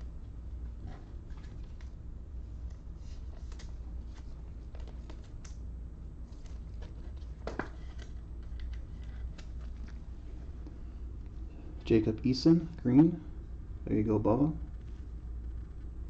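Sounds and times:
low steady hum: 0.0s - 16.0s
trading cards clicking and rustling: 2.6s - 5.7s, 6.3s - 10.3s.

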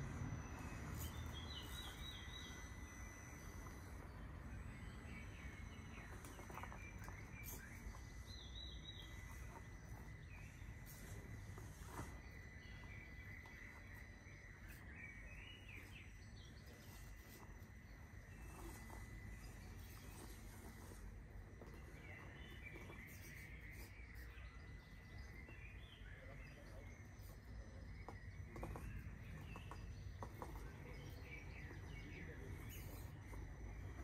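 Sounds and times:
birds chirping: 0.0s - 34.0s.

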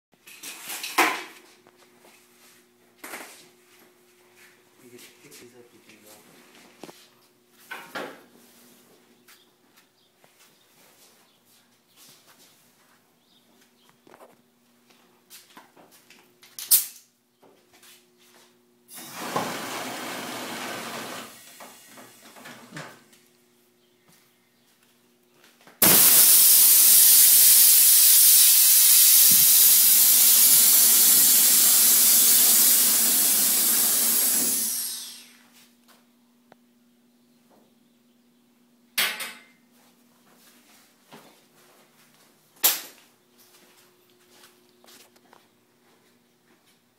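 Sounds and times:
air suspension hissing: 25.8s - 35.4s.

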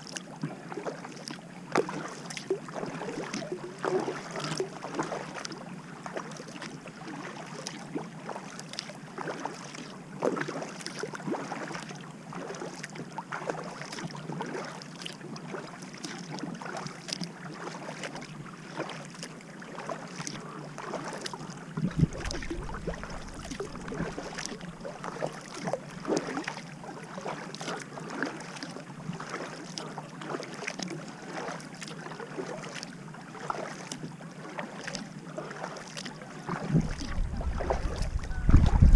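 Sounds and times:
paddle splashing in water: 0.0s - 38.9s
bow wave swishing and dripping: 13.9s - 38.9s
low thump with rumble: 21.8s - 24.8s, 36.7s - 38.9s.

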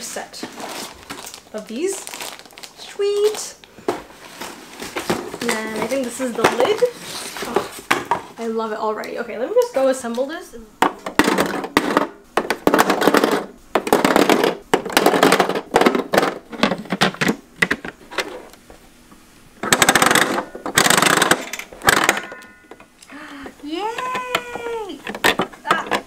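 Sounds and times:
plastic capsules clattering: 11.0s - 17.9s, 19.6s - 22.9s.

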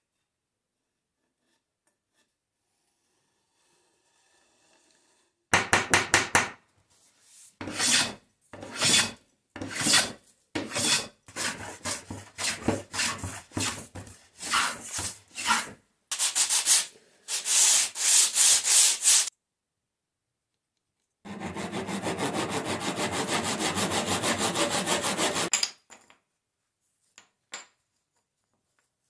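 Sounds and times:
bench plane rasping on wood: 7.6s - 15.7s, 21.3s - 25.5s
wood rubbed on sandpaper: 10.7s - 19.3s, 21.3s - 25.5s.

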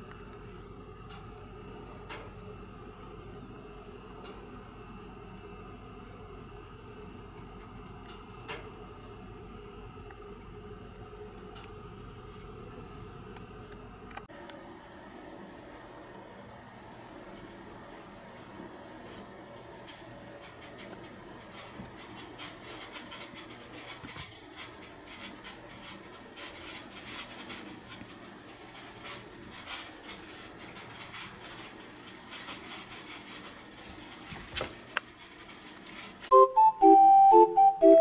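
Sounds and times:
water heating hiss and crackle: 0.0s - 36.3s
gentle melodic music: 36.3s - 38.0s.

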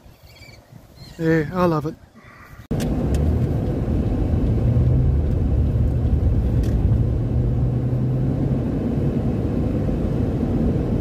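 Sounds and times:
road rumble: 0.0s - 11.0s
car engine drone: 2.7s - 11.0s.

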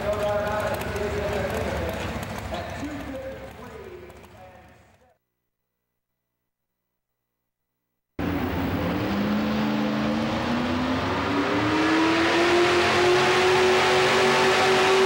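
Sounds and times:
truck engine revving: 0.0s - 4.4s, 8.2s - 15.0s.

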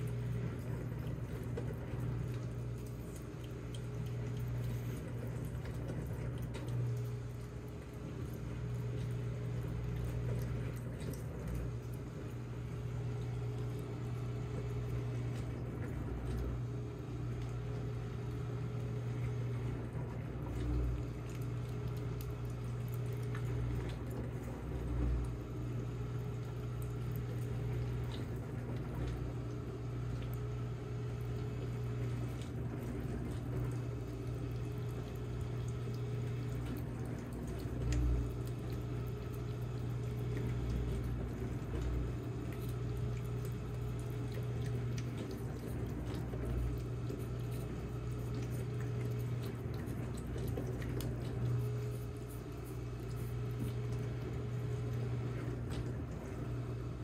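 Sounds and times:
cats licking spoon: 0.0s - 12.0s, 20.5s - 25.4s, 31.4s - 56.4s
steady low hum: 0.0s - 57.0s.

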